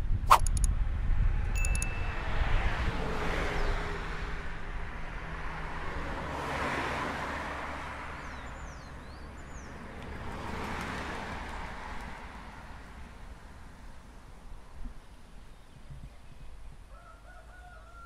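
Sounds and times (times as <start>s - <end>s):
tyre noise on road: 0.1s - 16.7s
cars passing: 0.9s - 15.5s.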